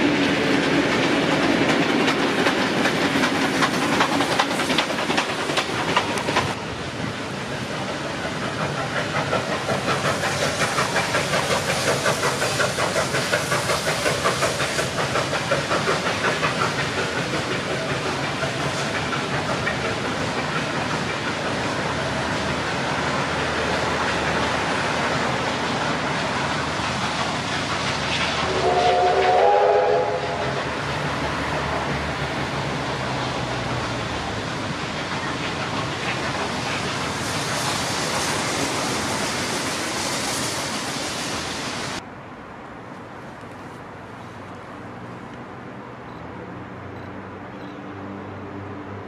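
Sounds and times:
train wheels rumbling over bridge: 0.0s - 49.0s
steam locomotive whistle: 28.4s - 30.6s.

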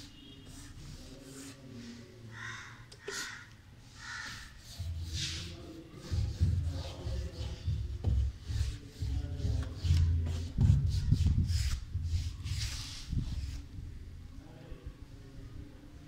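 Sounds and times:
paintbrush swishing on wood: 0.0s - 2.1s, 3.2s - 13.7s.

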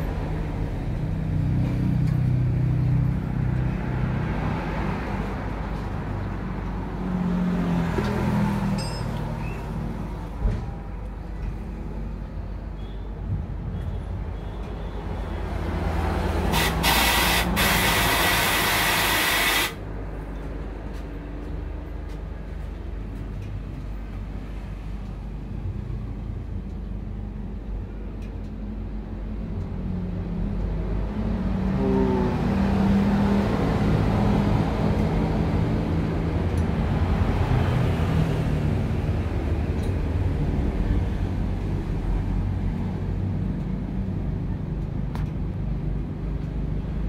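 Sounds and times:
compressed air hissing: 16.5s - 19.8s.

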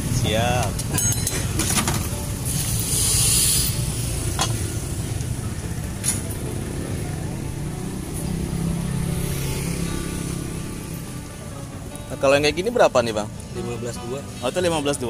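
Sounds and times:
street traffic rumble: 0.0s - 15.0s
vehicle engine drone: 1.6s - 12.2s.

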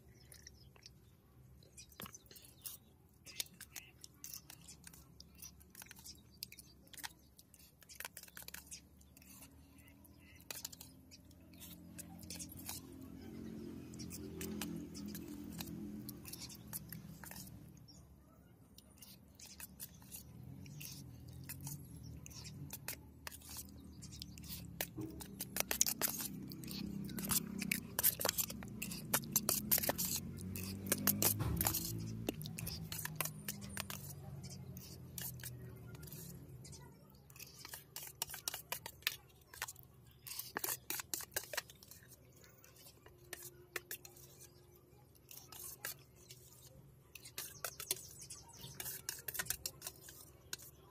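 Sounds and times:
chewing: 0.0s - 17.8s, 18.7s - 50.8s
spoon scraping steel plate: 10.2s - 17.6s, 19.0s - 42.0s, 45.3s - 50.8s.

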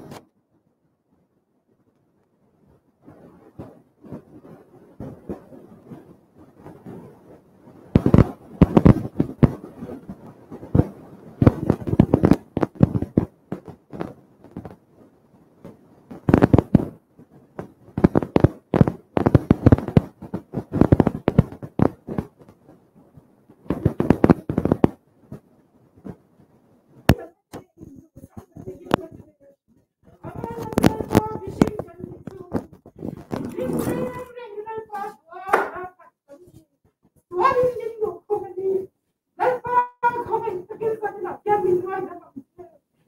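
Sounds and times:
distorted woman speaking loudly: 33.4s - 36.1s.

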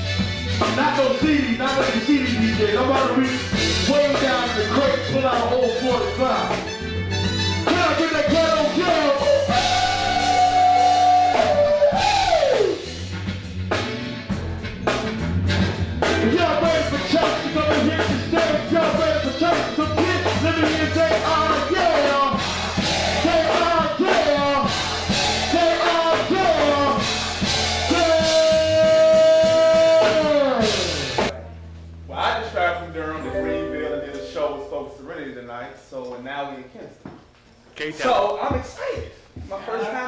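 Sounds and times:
live band playing: 0.0s - 31.3s, 33.2s - 34.9s
man singing into a microphone: 16.5s - 22.2s.

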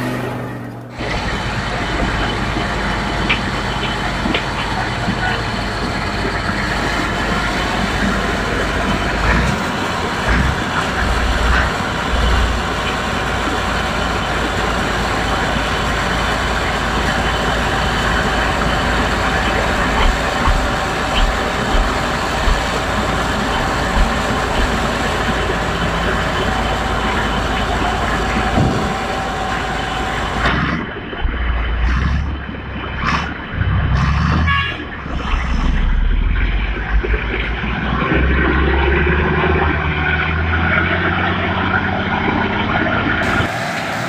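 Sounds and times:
thin steady whine: 0.0s - 33.5s
heavy diesel machinery running: 0.0s - 44.0s
knocks and clanks: 1.8s - 13.3s, 18.2s - 29.6s.

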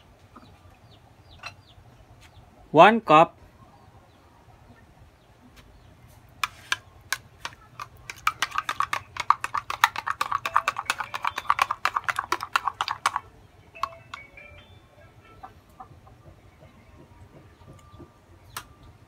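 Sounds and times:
spoon clicking in container: 6.4s - 13.2s.

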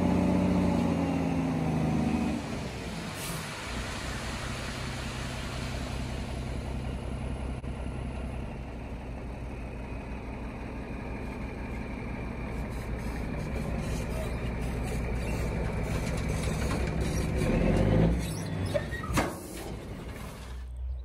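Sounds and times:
diesel engine running: 0.0s - 21.0s
rubble sliding out with hiss: 19.3s - 20.7s.

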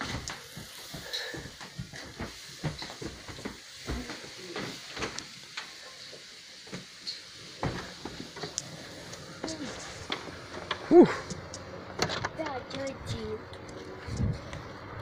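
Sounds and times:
child's footsteps on wooden floor: 0.0s - 4.3s
knocks and thump: 7.6s - 8.2s.

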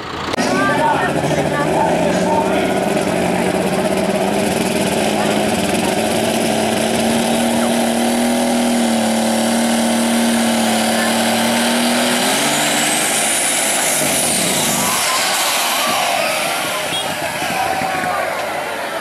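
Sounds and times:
high rising whine: 0.0s - 18.6s
tractor engine revving loud: 0.0s - 19.0s.

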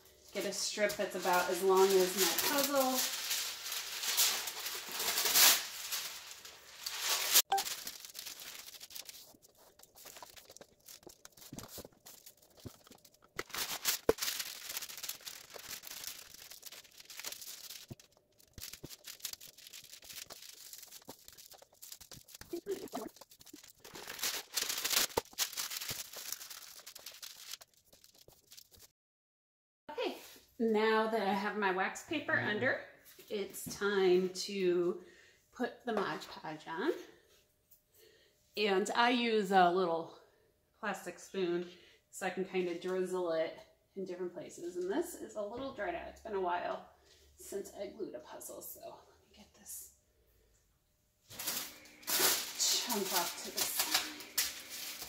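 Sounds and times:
wax paper crinkling: 0.2s - 28.9s, 51.3s - 55.0s.

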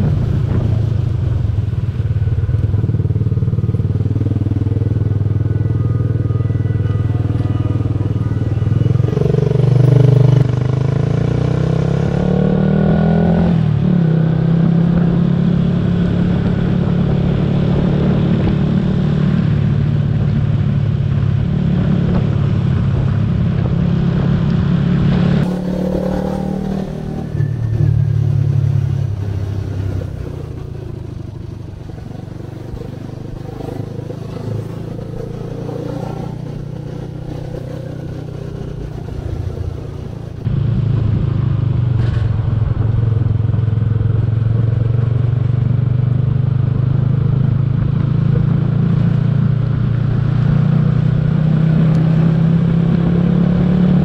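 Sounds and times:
scooter engine running: 0.0s - 10.8s, 25.4s - 40.5s
wind noise on microphone: 0.0s - 25.7s, 26.3s - 54.0s.

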